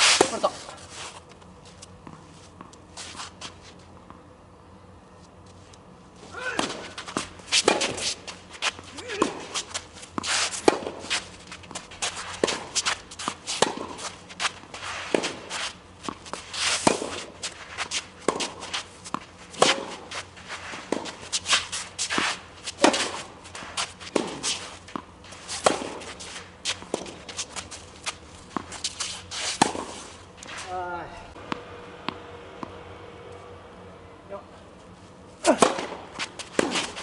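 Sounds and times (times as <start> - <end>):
shoes scuffing on court: 0.0 - 4.2, 5.2 - 32.7, 34.8 - 37.0
tennis ball struck with rackets: 6.3 - 11.8, 12.4 - 20.1, 20.9 - 23.3, 24.1 - 26.1, 29.6 - 30.0, 30.6 - 32.8, 35.4 - 37.0.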